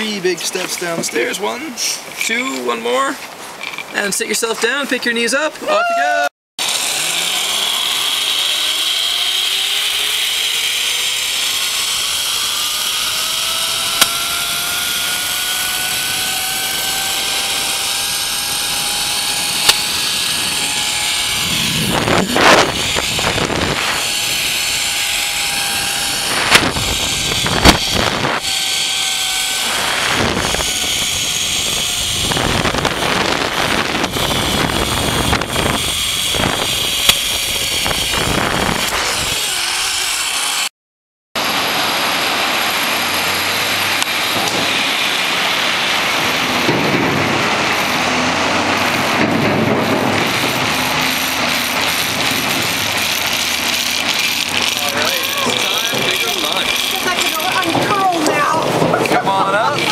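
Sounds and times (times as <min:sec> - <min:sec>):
zip line pulleys whining: 0:05.6 - 0:40.7, 0:41.4 - 0:59.9
rushing wind: 0:09.6 - 0:40.6, 0:41.4 - 0:59.9
wind buffeting: 0:13.1 - 0:40.0
loud bumps: 0:46.0 - 0:59.3.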